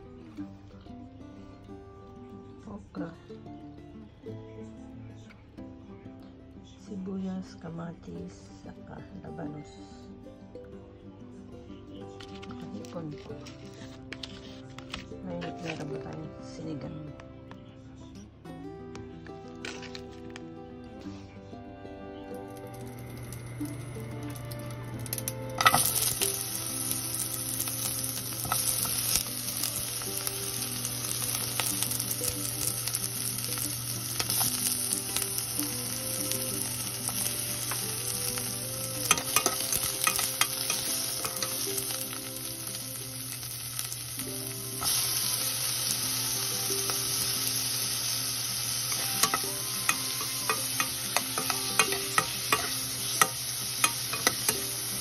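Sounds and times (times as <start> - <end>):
metal spoon scraping pot: 13.0 - 15.8, 39.1 - 41.6, 48.9 - 54.7
onions sizzling in oil: 22.4 - 55.0.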